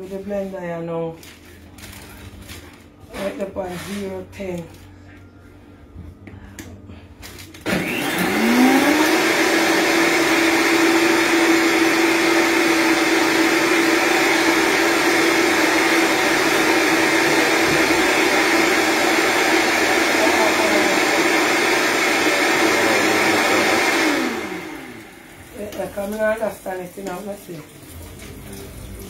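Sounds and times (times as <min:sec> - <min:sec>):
blender motor whine: 0:07.6 - 0:25.9.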